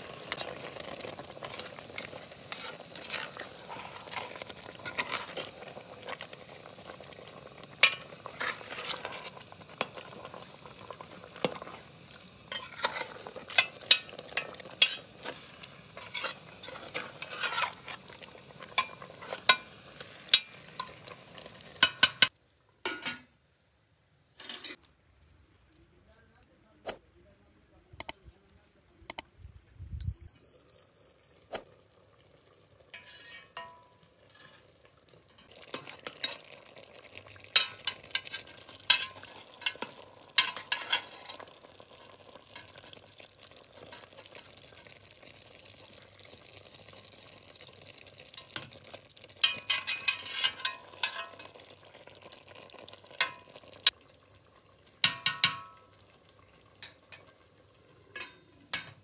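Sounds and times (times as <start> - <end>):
faint steady hiss: 0.0 - 59.0
metal spoon scraping pot: 1.4 - 5.5, 12.5 - 15.4, 16.0 - 18.1, 32.9 - 34.7, 37.6 - 41.4, 49.4 - 51.5
metal pot lid clanking: 12.5 - 15.1, 32.9 - 33.9, 37.6 - 41.4, 49.4 - 51.5, 55.0 - 55.8, 58.1 - 59.0
short high ding: 30.0 - 31.8.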